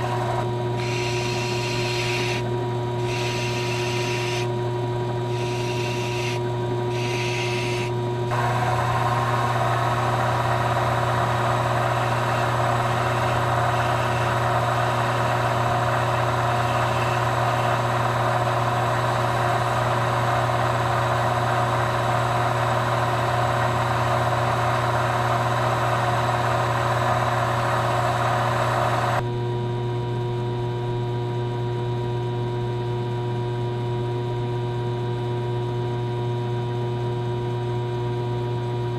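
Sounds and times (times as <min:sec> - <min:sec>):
tool rubbing spinning tip: 0:00.0 - 0:04.5, 0:05.3 - 0:29.0
lathe motor humming: 0:00.0 - 0:29.2.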